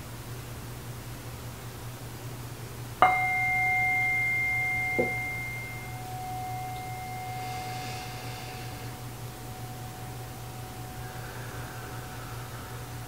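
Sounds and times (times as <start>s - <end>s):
metal singing bowl ringing: 3.0s - 13.0s.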